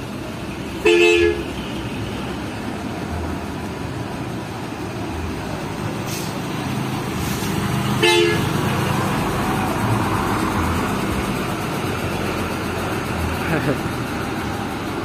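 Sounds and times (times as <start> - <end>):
dump trucks driving past: 0.0 - 15.0
truck horn blast: 0.8 - 1.8, 7.9 - 8.7.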